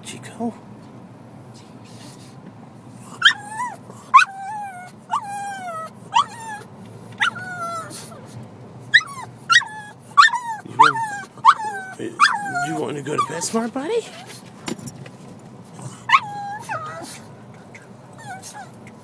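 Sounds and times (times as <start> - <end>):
dog whining in high-pitched cries: 3.1 - 14.3, 16.0 - 19.0.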